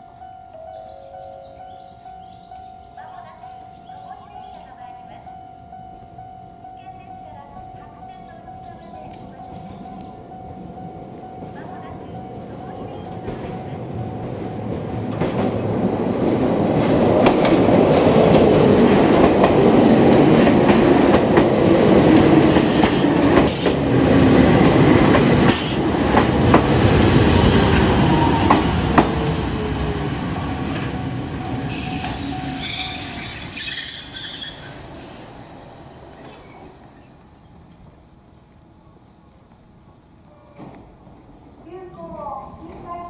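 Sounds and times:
train rolling noise: 0.0s - 43.0s
train wheels knocking: 12.6s - 32.7s
high brake squeal: 31.7s - 37.7s.

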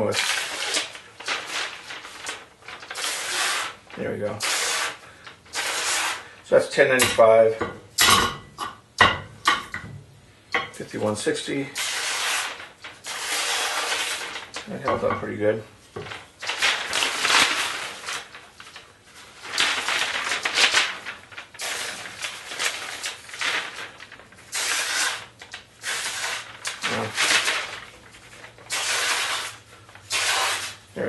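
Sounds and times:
paper rustling: 0.0s - 6.2s, 11.8s - 15.0s, 15.9s - 30.8s
knife slicing through paper: 0.1s - 3.8s, 11.7s - 14.6s, 16.4s - 18.8s, 19.4s - 27.9s, 28.7s - 30.8s.

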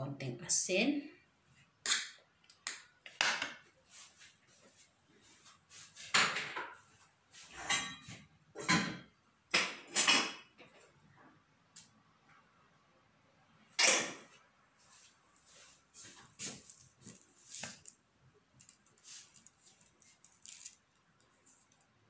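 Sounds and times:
kitchen utensils clattering on cookware: 7.5s - 10.4s.

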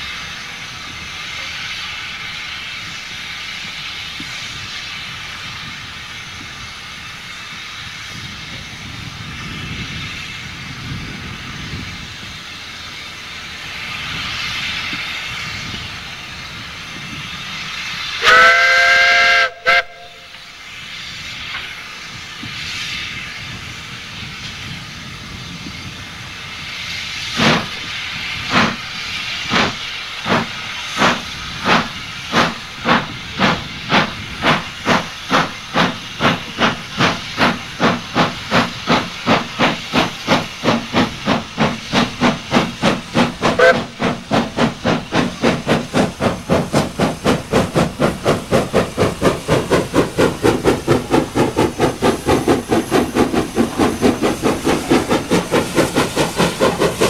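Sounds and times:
steam hissing: 0.0s - 57.0s
steam locomotive exhaust chuffs: 0.0s - 57.0s
steam whistle toot: 18.2s - 20.5s, 43.6s - 44.0s.

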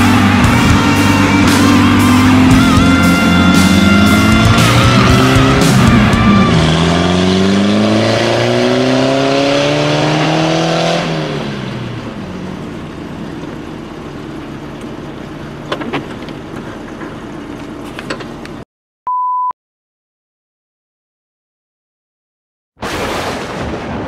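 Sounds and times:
rushing noise: 0.0s - 8.6s
vehicle engine revving hard: 0.0s - 12.4s.

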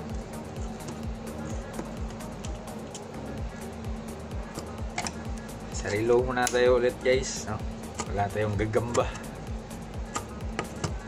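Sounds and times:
dance music with kick drum: 0.0s - 11.0s.

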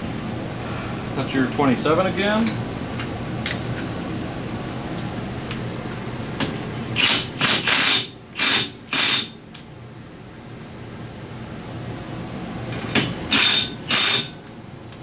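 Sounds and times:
impact wrench hammering: 7.0s - 9.4s, 13.0s - 14.4s.

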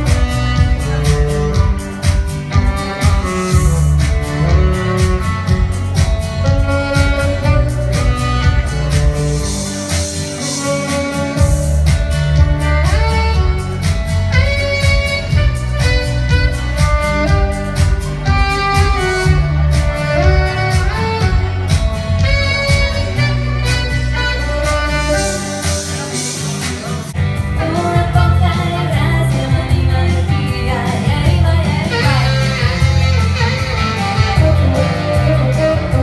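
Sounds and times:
backing track with beat and bass: 0.0s - 36.0s
saxophone: 0.0s - 36.0s
woman singing: 27.5s - 33.3s.

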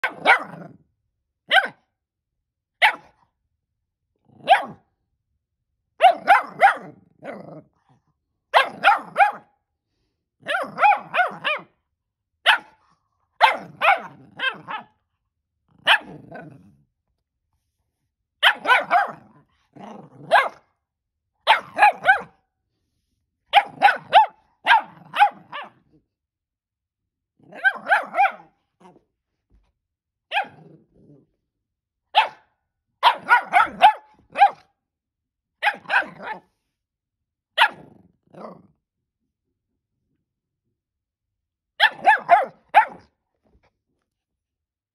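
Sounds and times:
puppy barking: 0.0s - 0.7s, 1.5s - 1.9s, 2.8s - 3.2s, 4.4s - 4.9s, 6.0s - 7.3s, 8.5s - 9.6s, 10.4s - 11.8s, 12.4s - 12.8s, 13.4s - 15.0s, 15.8s - 16.2s, 18.4s - 19.4s, 20.2s - 20.7s, 21.4s - 22.4s, 23.5s - 25.9s, 27.5s - 28.6s, 30.3s - 30.7s, 32.1s - 34.8s, 35.6s - 36.6s, 37.6s - 37.9s, 41.8s - 43.2s.

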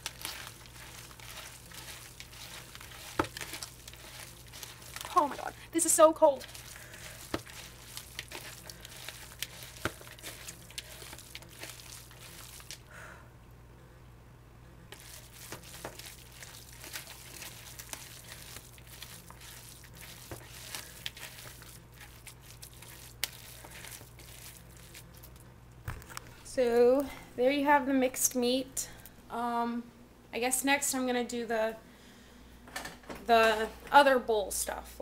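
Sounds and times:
hands kneading meat mixture: 0.0s - 12.9s, 14.9s - 27.2s.

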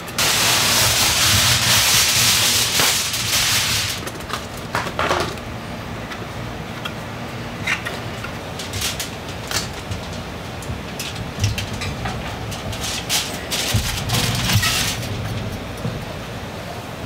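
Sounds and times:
aluminum foil crinkling: 0.2s - 5.4s, 7.6s - 15.8s
foil taps on cooking sheet: 1.6s - 4.0s.

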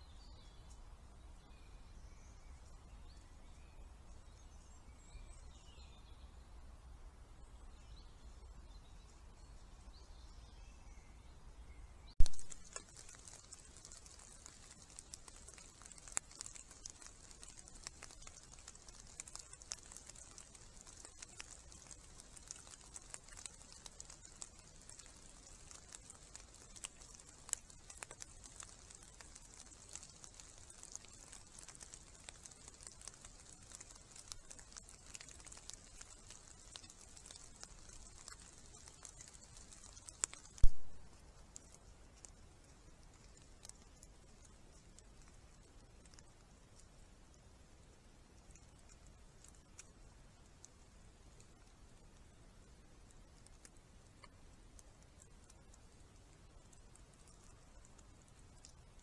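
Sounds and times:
steady high hiss: 0.0s - 59.0s
animal rooting in leaf litter: 12.2s - 59.0s.

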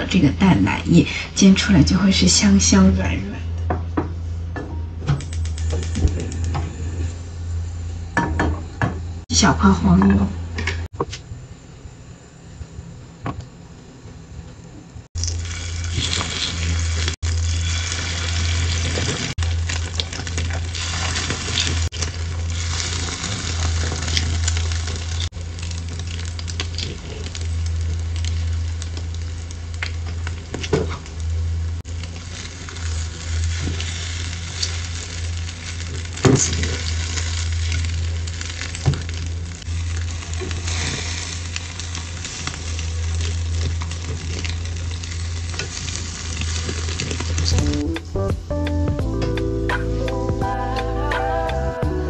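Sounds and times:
low steady hum: 0.0s - 52.0s
bread sizzling in butter: 15.2s - 30.7s, 31.9s - 47.6s.

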